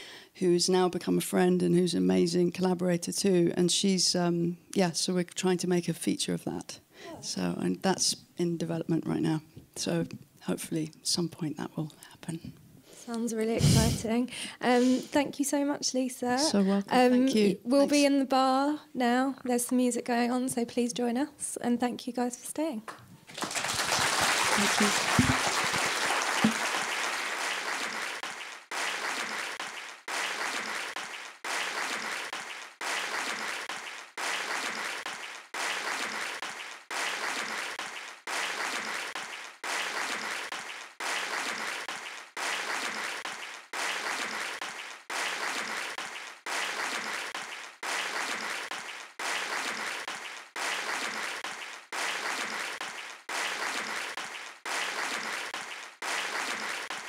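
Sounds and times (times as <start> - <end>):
audience applause: 23.2 - 57.0.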